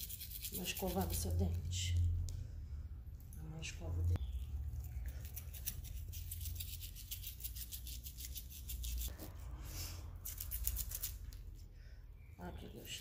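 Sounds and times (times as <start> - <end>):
toothbrush scrubbing teeth: 0.0 - 1.6, 4.6 - 9.1.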